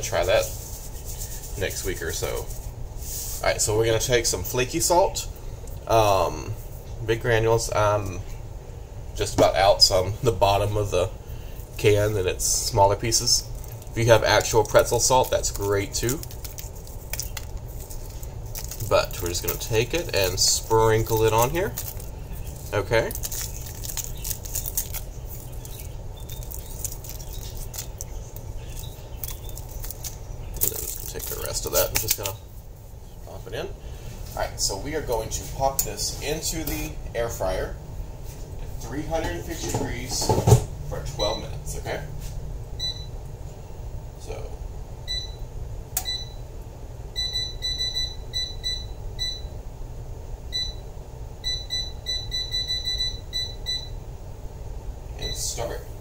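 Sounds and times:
steady low hum: 0:00.0 - 0:56.0
salt grains pattering on dough: 0:13.0 - 0:32.4
air fryer touch panel beeps: 0:42.8 - 0:43.1, 0:45.1 - 0:45.4, 0:46.0 - 0:46.4, 0:47.2 - 0:49.6, 0:50.5 - 0:50.8, 0:51.4 - 0:54.0.

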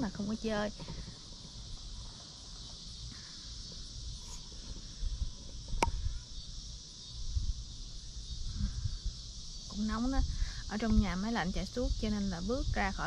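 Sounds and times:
high-pitched insect chorus: 0:00.0 - 0:13.0
wind rumble on microphone: 0:03.6 - 0:13.0.

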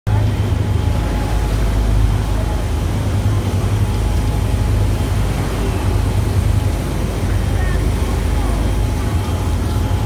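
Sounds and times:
boat engine rumbling: 0:00.1 - 0:10.0.

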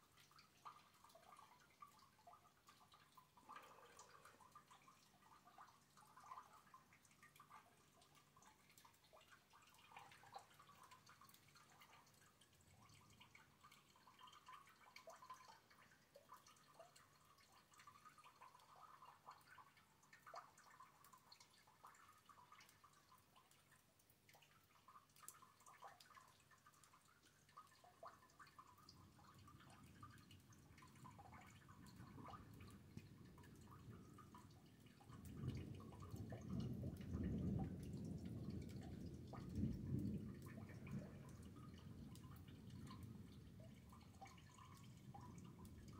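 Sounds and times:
rainwater drips and taps: 0:00.0 - 0:45.9
low thunder rumble: 0:35.4 - 0:43.9.

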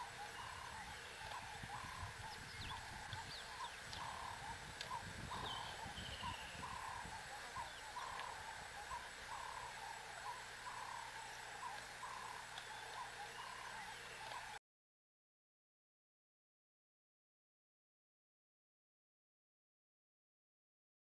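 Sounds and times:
low uneven noise: 0:00.0 - 0:14.6.

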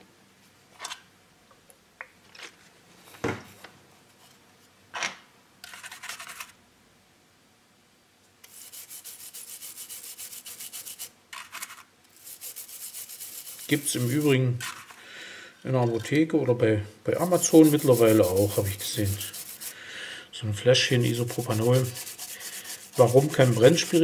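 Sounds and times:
brush scrubbing circuit board: 0:08.4 - 0:11.2, 0:12.1 - 0:14.4, 0:17.2 - 0:19.8, 0:20.8 - 0:24.0.

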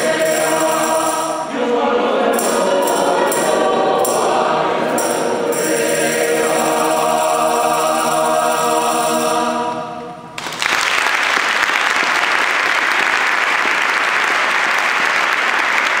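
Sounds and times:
choir singing chord: 0:00.0 - 0:10.3
audience applause: 0:10.4 - 0:16.0.

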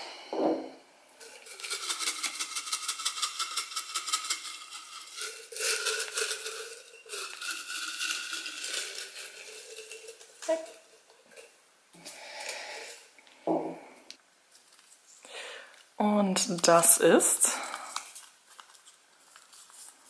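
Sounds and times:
paper slips rattling in glass jar: 0:01.2 - 0:11.5, 0:16.2 - 0:20.0.

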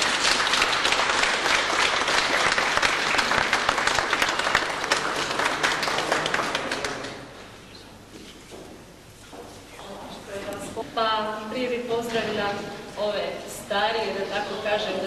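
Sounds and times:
group applauding: 0:00.0 - 0:07.4.

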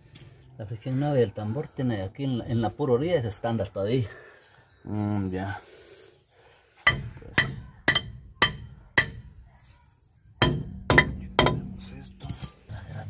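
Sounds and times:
ringing metal knocks on brake drum: 0:06.9 - 0:09.3, 0:10.4 - 0:11.9.

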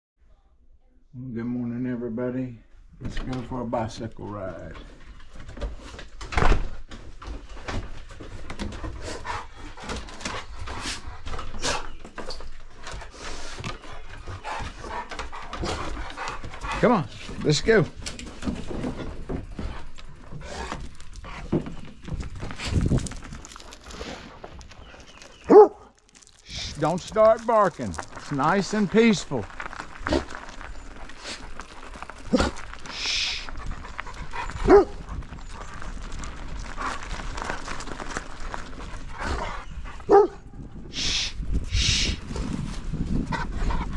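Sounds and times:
rustles and clicks: 0:04.3 - 0:40.9
dog barking: 0:25.5 - 0:25.8, 0:34.6 - 0:35.0, 0:40.1 - 0:40.4.

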